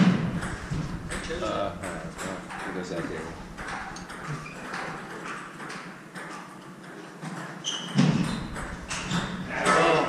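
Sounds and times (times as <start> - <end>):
table tennis ball clicking: 0.4 - 6.7.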